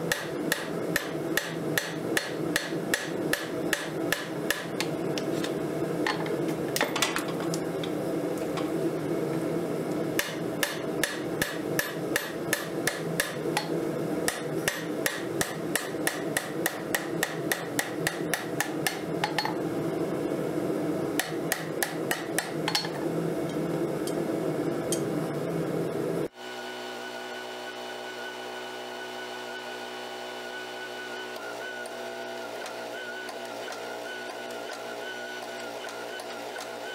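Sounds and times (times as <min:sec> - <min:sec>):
steady hum: 0:00.0 - 0:26.4
hammer striking steel on anvil: 0:00.1 - 0:04.7, 0:10.2 - 0:13.7, 0:14.3 - 0:19.6, 0:21.2 - 0:23.0.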